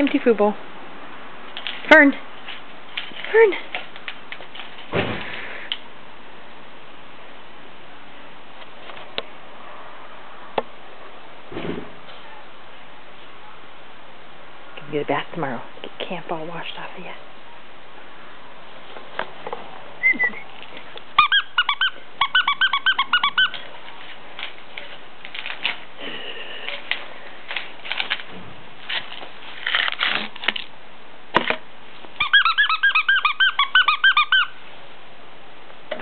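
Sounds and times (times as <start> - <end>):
rustles and clicks: 1.5 - 5.9, 23.4 - 30.8
squeaky toy squeaking: 21.2 - 23.6, 32.2 - 34.6.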